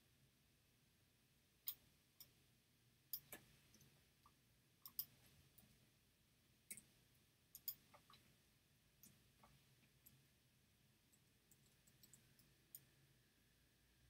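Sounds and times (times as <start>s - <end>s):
computer mouse clicks: 1.7s - 2.3s, 3.1s - 5.8s, 6.7s - 6.9s, 7.5s - 8.3s, 11.1s - 12.9s.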